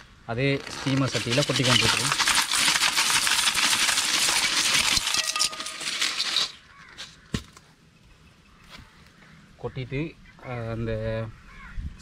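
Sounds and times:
clam shells clattering in pot: 0.6 - 6.7.

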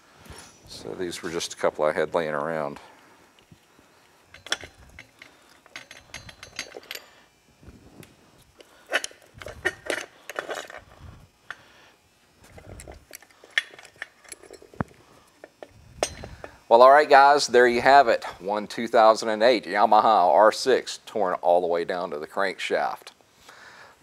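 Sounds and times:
metal gears clinking: 4.3 - 7.1, 16.0 - 16.4.

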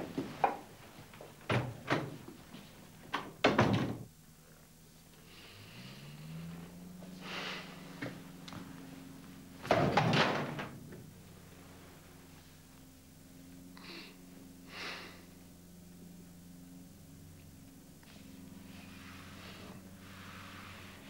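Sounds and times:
low steady tone: 4.1 - 9.6
heavy knocks and thuds: 9.6 - 10.8.

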